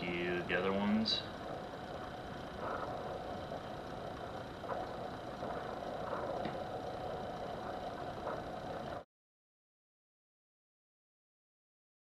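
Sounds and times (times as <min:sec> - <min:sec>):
steady background hum: 0:00.0 - 0:09.1.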